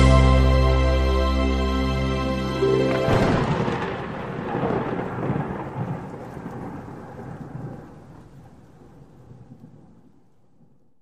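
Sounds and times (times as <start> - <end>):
crackling thunder-like crash: 2.9 - 10.8.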